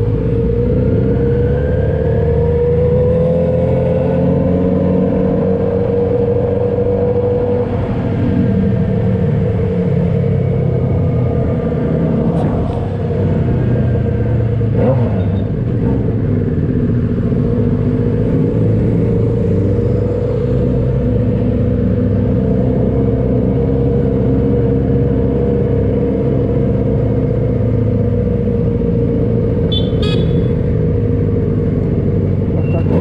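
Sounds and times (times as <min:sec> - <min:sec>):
motorcycle engine running: 0:29.4 - 0:32.8.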